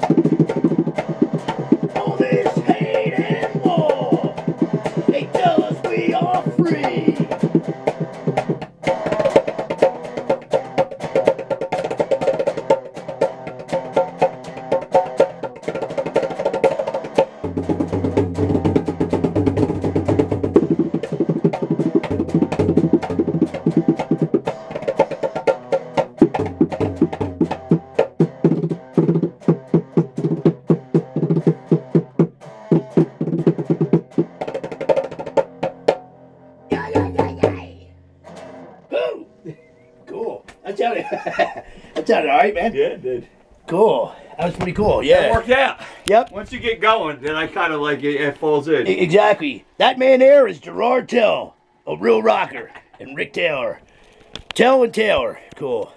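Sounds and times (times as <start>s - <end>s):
fast percussive beat: 0.0s - 36.1s, 36.7s - 38.4s, 44.4s - 48.2s
electric guitar jam: 0.0s - 55.9s.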